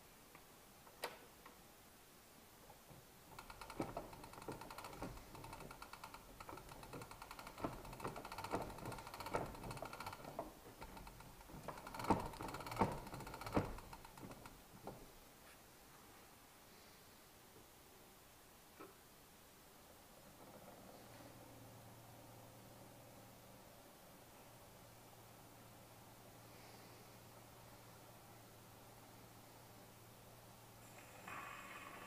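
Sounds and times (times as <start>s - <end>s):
ratchet clicking: 3.4s - 14.5s.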